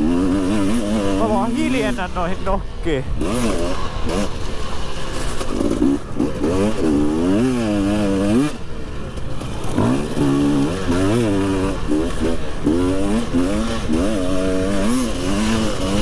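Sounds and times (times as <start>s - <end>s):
motocross bike engine revving: 0.0s - 16.0s.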